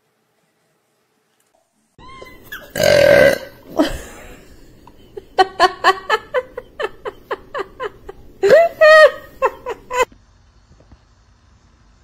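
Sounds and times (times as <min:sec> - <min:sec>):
loud burp: 0:02.7 - 0:03.8.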